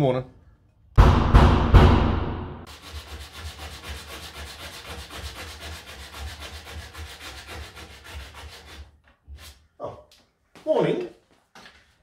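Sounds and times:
sandpaper sanding: 2.7s - 9.6s.

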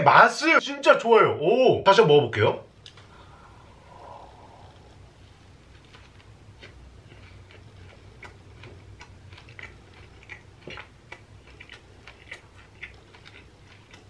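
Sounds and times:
chewing with crunching clicks: 5.7s - 14.0s.

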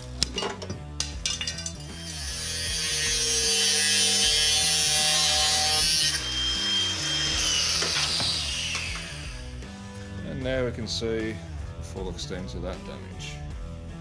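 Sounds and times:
background music with bass line: 0.0s - 14.0s
metal clinks: 0.4s - 2.0s
angle grinder cutting metal: 1.3s - 9.8s.

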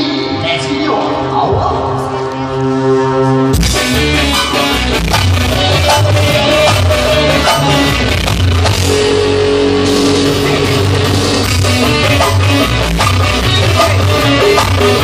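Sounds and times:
live band music through speakers: 0.0s - 15.0s.

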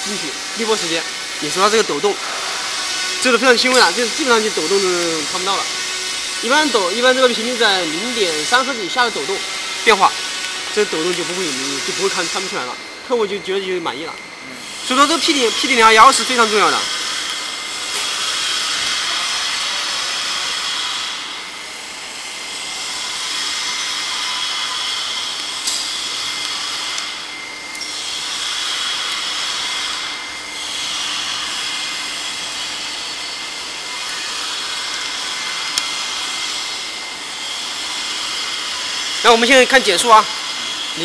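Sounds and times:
machine rushing hiss: 0.0s - 27.3s
thin motor whine: 0.0s - 41.0s.

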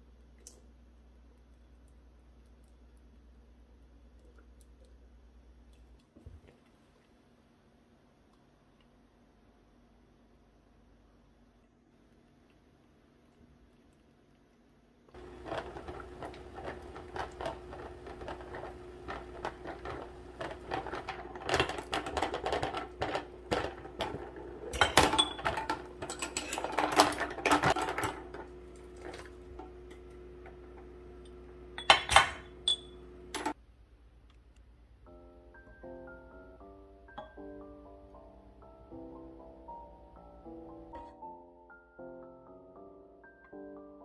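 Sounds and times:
glass jars clinking on metal: 20.6s - 28.3s, 31.8s - 33.0s.

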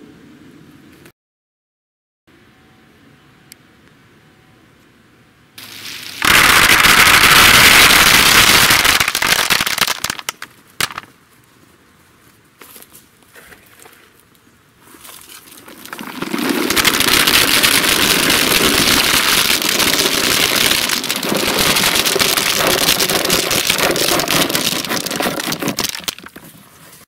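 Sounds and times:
nuts rattling into basket: 15.4s - 26.4s.

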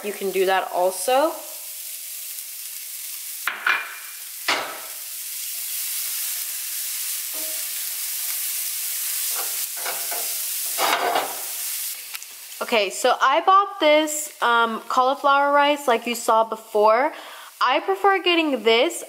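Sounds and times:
shallots and garlic sizzling in butter: 0.0s - 19.0s
spatula stirring in a pan: 9.2s - 11.4s.

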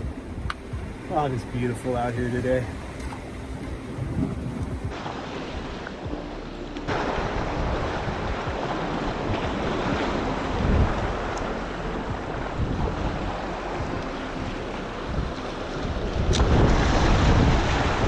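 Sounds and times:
wind buffeting microphone: 0.0s - 6.3s, 6.9s - 18.0s
surf washing against rocks: 0.9s - 18.0s.

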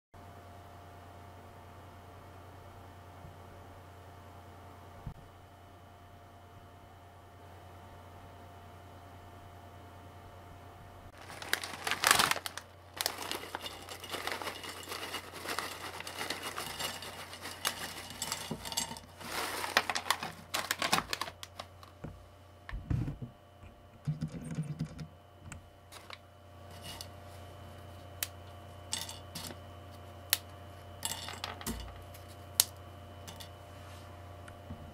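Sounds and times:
plastic snack bag crinkling: 11.2s - 22.0s, 25.9s - 27.1s
crackers clicking on a plate: 13.1s - 19.1s, 28.2s - 29.6s, 30.3s - 32.0s.

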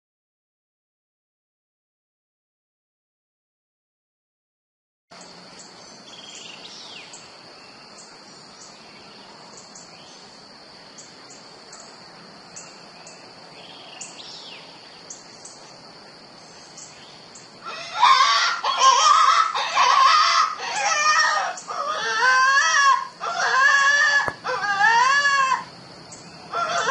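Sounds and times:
bird chirps: 5.1s - 17.6s, 26.1s - 26.9s
steady high hum: 23.9s - 26.6s.

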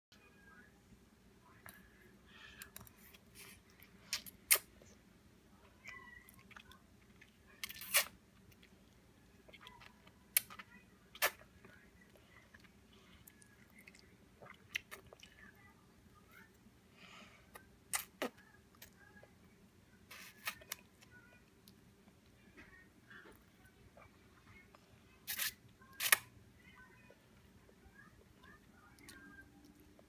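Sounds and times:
toddler chewing: 5.7s - 8.8s.

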